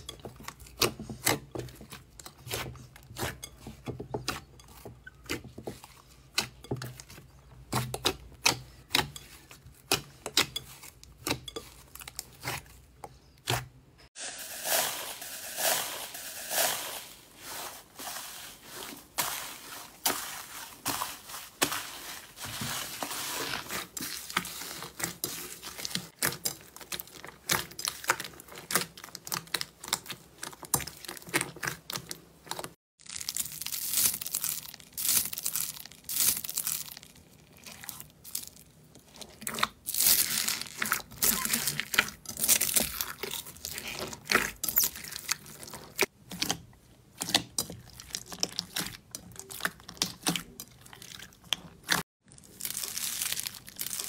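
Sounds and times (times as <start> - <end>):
foam bead slime crunching: 33.0 - 46.1, 47.3 - 54.0.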